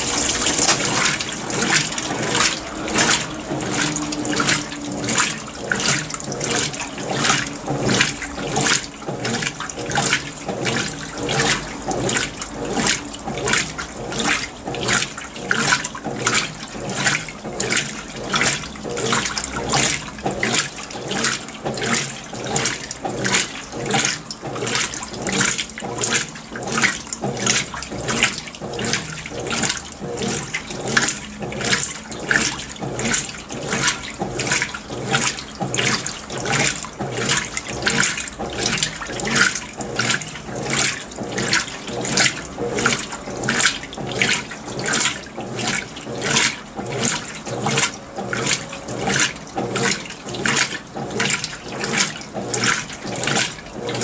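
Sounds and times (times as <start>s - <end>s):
washing machine sloshing: 0.0s - 54.0s.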